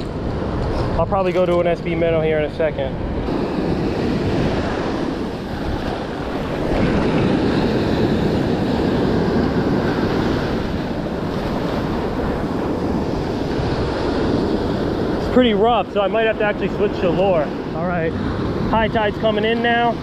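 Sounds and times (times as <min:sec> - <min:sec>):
ocean surf breaking: 0:00.0 - 0:20.0
wind buffeting microphone: 0:00.0 - 0:20.0.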